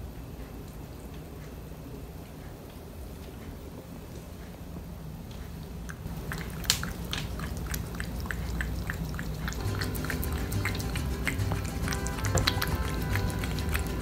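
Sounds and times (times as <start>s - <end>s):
cat chewing wet food: 5.2s - 14.0s
background music: 9.6s - 14.0s.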